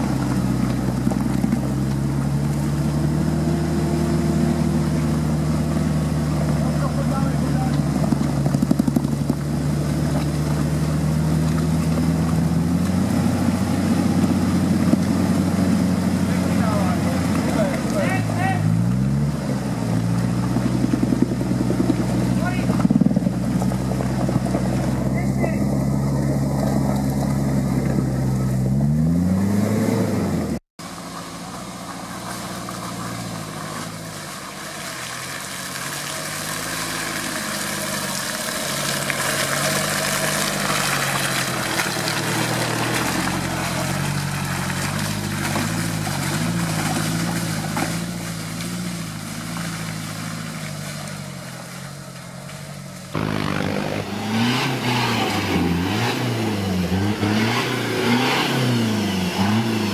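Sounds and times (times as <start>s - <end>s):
off-road engine revving: 0.0s - 59.9s.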